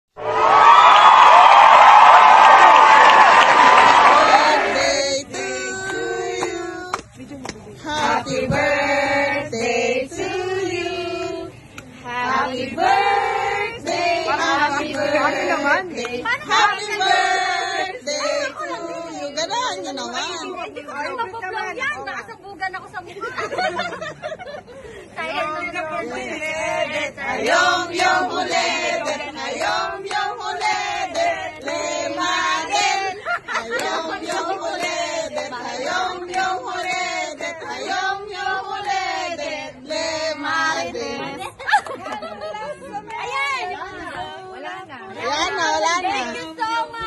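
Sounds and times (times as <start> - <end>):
several voices singing held notes: 2.3 - 7.1, 7.8 - 20.4, 26.0 - 41.6.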